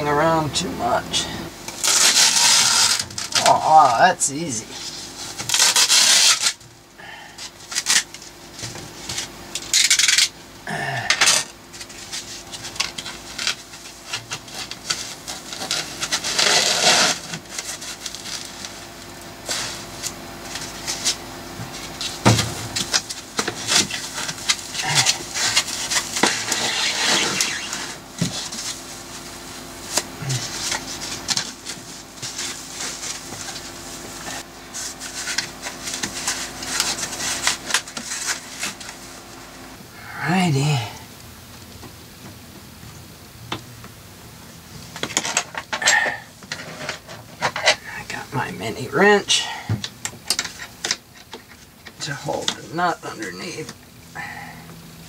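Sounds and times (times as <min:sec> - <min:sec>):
faint steady hum: 0:00.0 - 0:55.0
foam rubbing and scraping: 0:01.8 - 0:06.6, 0:11.7 - 0:39.3.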